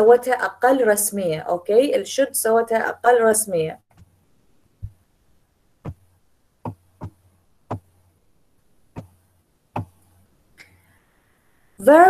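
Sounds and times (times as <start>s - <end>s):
short sharp knocks: 5.8s - 8.0s, 9.0s - 9.2s, 9.8s - 10.1s.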